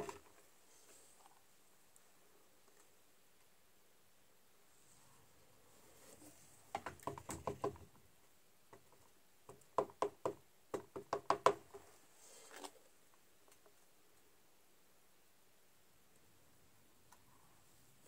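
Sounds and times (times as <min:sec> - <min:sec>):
soft rustle: 0:00.0 - 0:03.6, 0:04.5 - 0:06.7, 0:11.7 - 0:14.4.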